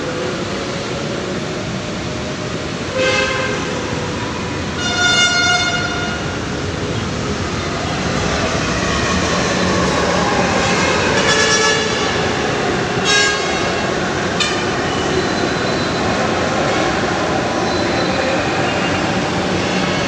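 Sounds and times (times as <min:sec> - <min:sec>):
train wheels and motors rumbling: 0:00.0 - 0:20.0
train horn: 0:02.9 - 0:03.9, 0:04.7 - 0:06.4, 0:10.5 - 0:12.4, 0:13.0 - 0:15.0.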